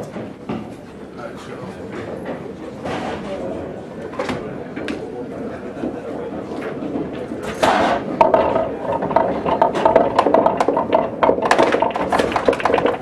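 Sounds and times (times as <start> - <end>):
pool balls clacking: 4.2 - 13.0.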